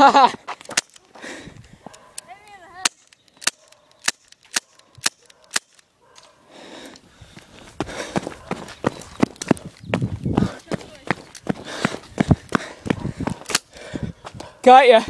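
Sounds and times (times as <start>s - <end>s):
airsoft pistol shots snapping: 2.8s - 5.8s.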